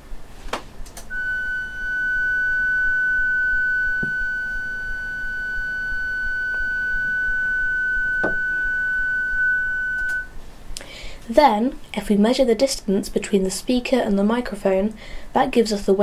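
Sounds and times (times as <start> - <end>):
sine-wave test tone: 1.1 - 10.4
clicks: 10.0 - 10.2.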